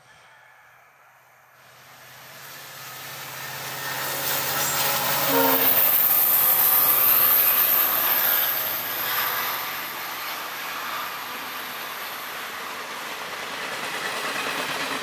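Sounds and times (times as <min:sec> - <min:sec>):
diesel locomotive passing: 0:00.0 - 0:15.0
train wheels rolling on rails: 0:01.3 - 0:15.0
train horn note: 0:04.6 - 0:06.0.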